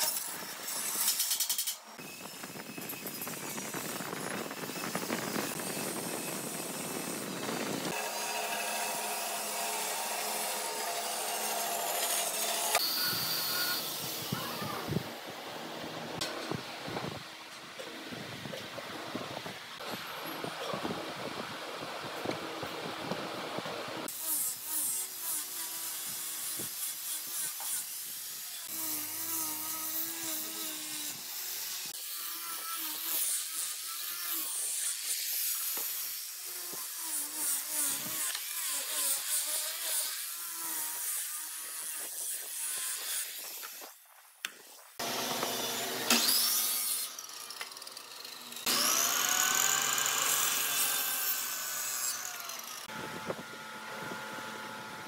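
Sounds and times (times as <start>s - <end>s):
wood being sawn: 2.4s - 14.9s, 24.0s - 55.0s.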